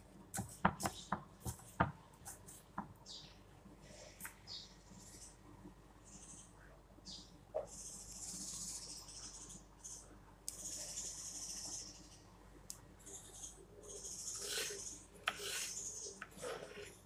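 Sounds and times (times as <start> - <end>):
knife slicing cucumber: 14.4 - 15.8.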